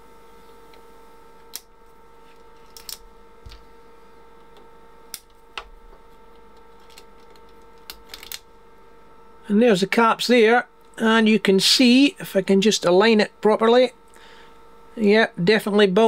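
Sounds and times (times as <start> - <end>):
faint high whine: 0.0 - 16.0
small parts and tools clicking: 2.6 - 3.6, 6.6 - 8.4.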